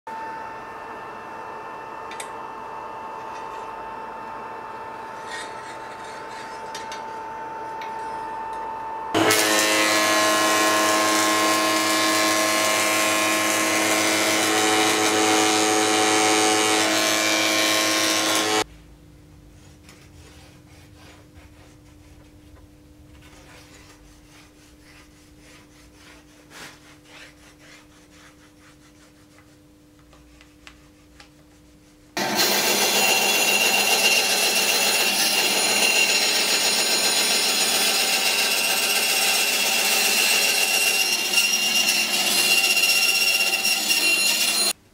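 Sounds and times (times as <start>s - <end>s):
table saw whining: 0.1s - 18.7s, 32.2s - 44.8s
bandsaw cutting wood: 9.1s - 18.6s, 32.2s - 44.8s.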